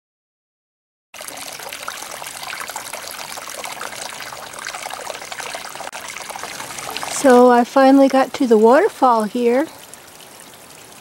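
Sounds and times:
water splashing over rocks: 1.2 - 11.0.

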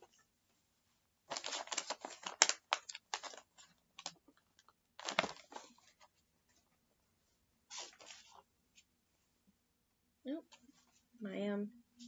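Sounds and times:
cardboard packaging rustling: 1.3 - 6.2, 7.7 - 8.4.

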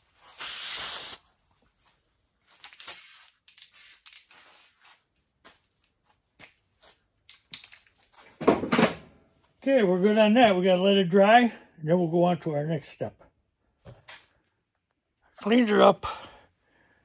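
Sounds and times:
aerosol spray can hissing: 0.3 - 1.2, 2.8 - 4.2.

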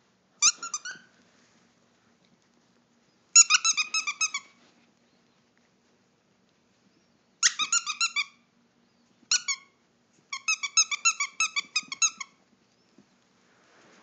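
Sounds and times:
squeaky dog toy squeaking: 0.4 - 1.1, 3.3 - 4.6, 7.4 - 8.4, 9.3 - 12.4.

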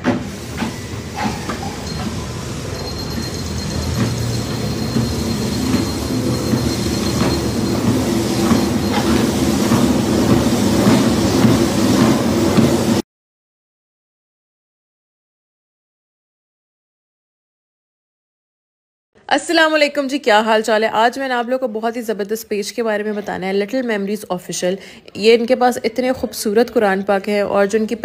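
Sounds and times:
treadmill motor and belt hum: 0.0 - 13.0.

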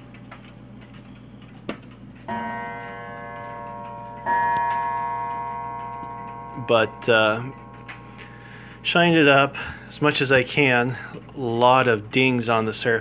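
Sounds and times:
clock ticking: 0.0 - 13.0
clock gong striking: 2.3 - 9.6.

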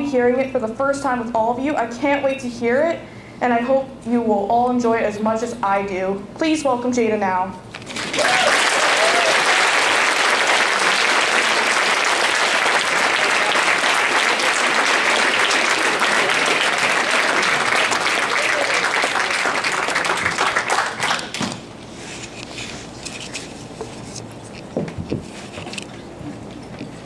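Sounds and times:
audience applauding: 7.9 - 21.4.

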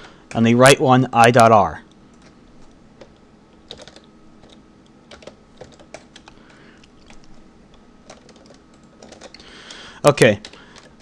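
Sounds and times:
keyboard typing clicks: 3.0 - 7.4, 8.0 - 9.8.

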